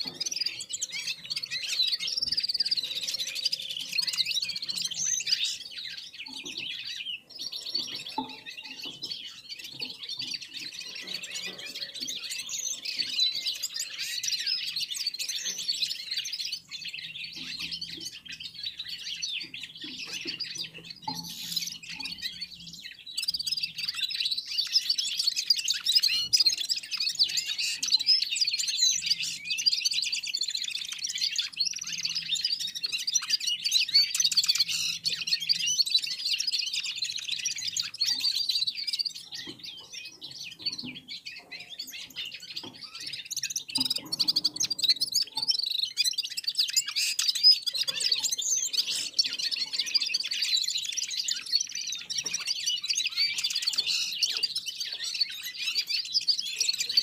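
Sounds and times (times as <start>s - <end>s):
caged birds twittering: 0.0s - 57.0s.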